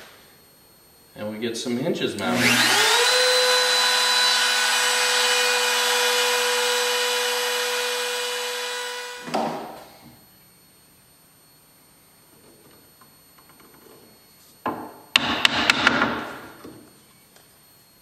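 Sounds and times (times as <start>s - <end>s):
router high whine: 1.6s - 14.3s.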